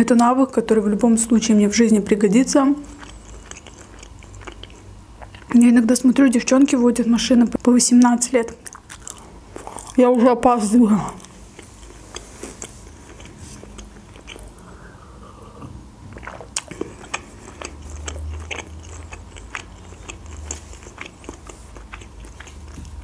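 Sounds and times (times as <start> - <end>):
person chewing food: 2.8 - 5.6, 8.5 - 10.0, 11.2 - 23.0.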